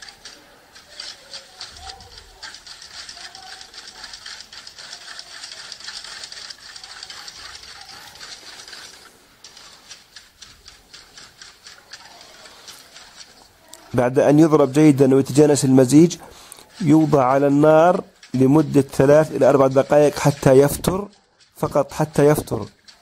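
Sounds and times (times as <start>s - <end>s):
whisk clicking against metal pot: 0.0s - 23.0s.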